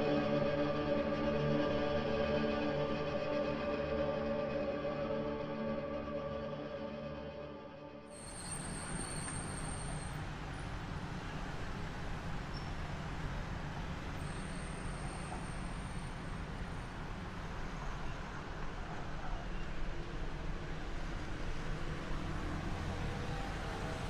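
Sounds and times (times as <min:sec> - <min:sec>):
street traffic rumble: 0:08.2 - 0:24.0.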